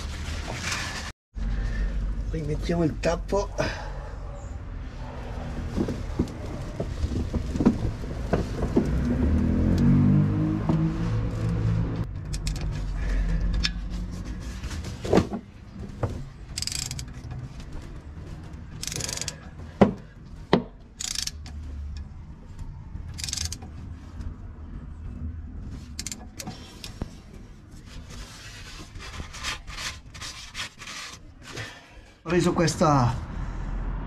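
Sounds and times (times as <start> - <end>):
metallic clicks and knocks of tools: 12.2 - 12.7, 16.5 - 17.4, 18.7 - 19.5, 21.0 - 22.1, 23.1 - 24.3, 25.9 - 27.0.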